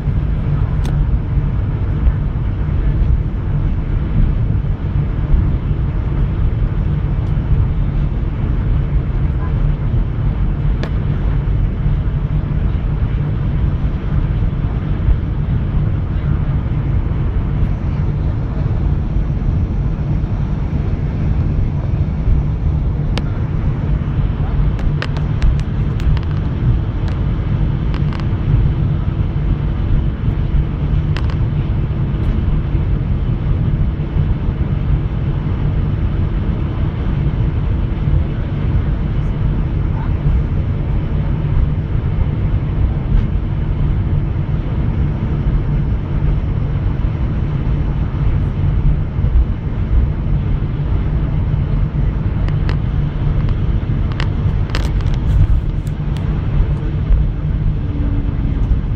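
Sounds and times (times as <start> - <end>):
aircraft cabin engine rumble: 0.0 - 58.9.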